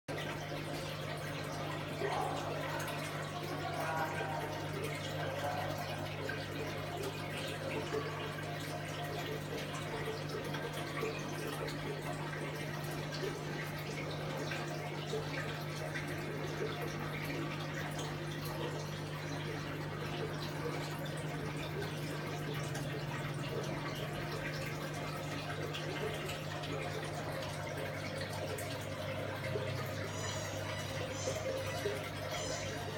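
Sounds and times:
pump humming: 0:00.1 - 0:32.9
water trickling and splashing: 0:00.1 - 0:32.9.

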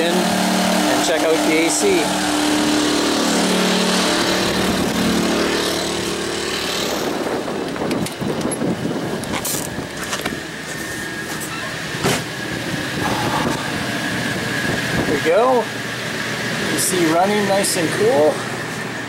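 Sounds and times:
generators humming: 0:00.0 - 0:19.0.

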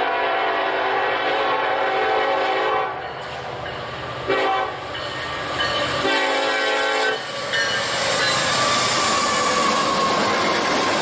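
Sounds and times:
locomotive air horn blasts: 0:00.0 - 0:03.0, 0:04.3 - 0:04.8, 0:06.0 - 0:07.3
train rumbling over rails: 0:00.0 - 0:11.0.

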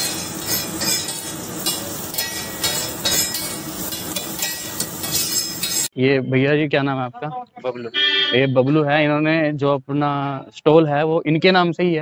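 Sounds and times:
food sizzling: 0:00.0 - 0:05.9
metal spatula clacking on griddle: 0:00.0 - 0:05.9.

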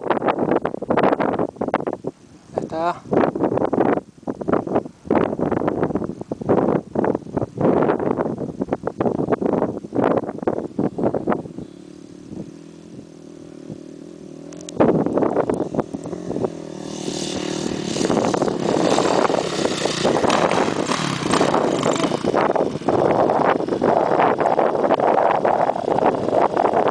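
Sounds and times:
dirt bike engine: 0:09.0 - 0:26.9.

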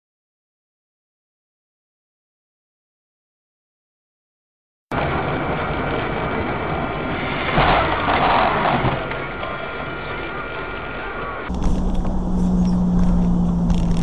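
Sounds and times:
road noise inside car: 0:09.1 - 0:14.0
car engine: 0:11.5 - 0:14.0.

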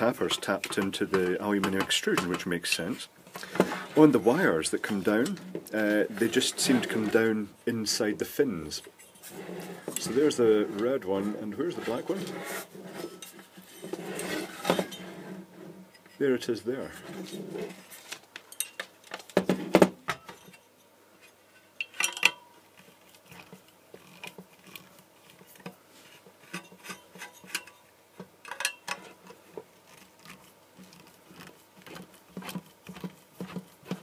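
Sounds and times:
metal parts clattering on bench: 0:21.8 - 0:22.5, 0:28.4 - 0:29.2.

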